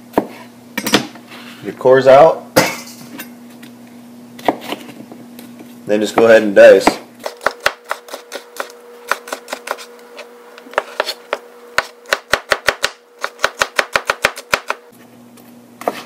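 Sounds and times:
knife chopping on cutting board: 4.4s - 4.8s, 6.2s - 9.9s, 10.7s - 14.8s.

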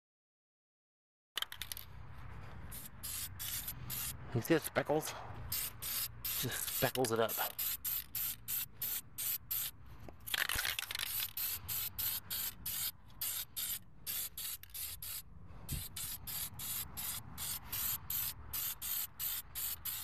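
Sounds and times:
spray paint can spraying: 2.7s - 4.2s, 5.5s - 20.0s.

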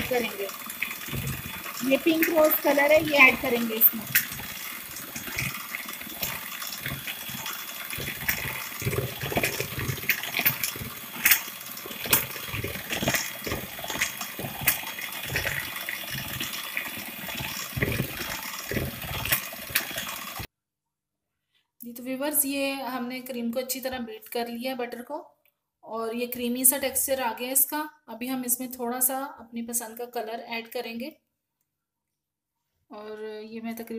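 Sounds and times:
electric hand mixer motor: 0.0s - 20.5s.

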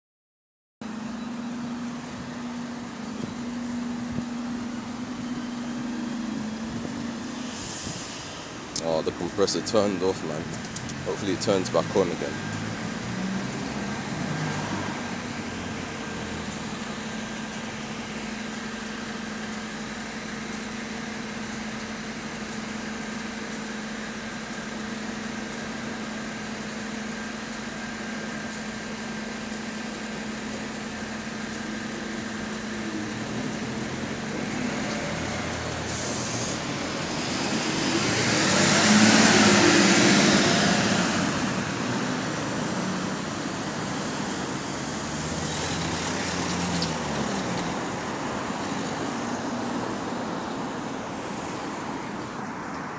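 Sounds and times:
truck diesel engine: 0.8s - 52.9s
air hiss: 7.4s - 8.6s, 35.9s - 36.6s.

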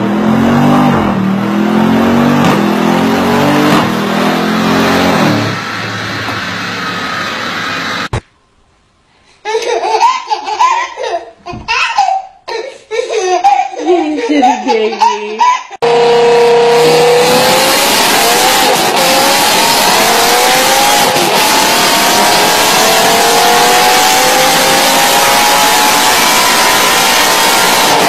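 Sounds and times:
car engine revving on a dyno: 0.0s - 8.1s, 15.8s - 28.0s
baby laughing: 9.4s - 15.8s.

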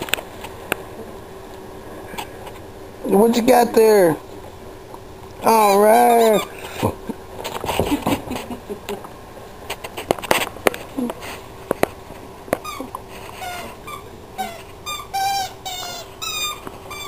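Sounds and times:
squeaky toy squeaking: 12.6s - 12.8s, 13.4s - 17.0s.

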